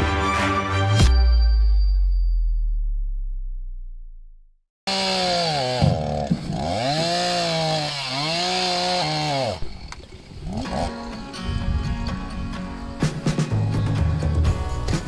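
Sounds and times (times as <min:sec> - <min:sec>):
chainsaw running at high revs: 0:04.9 - 0:11.3.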